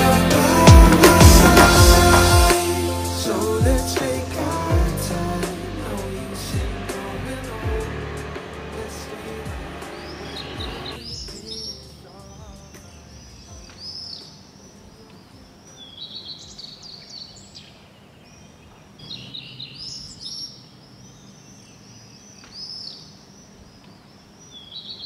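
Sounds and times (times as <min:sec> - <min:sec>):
birds chirping: 0:00.0 - 0:25.0.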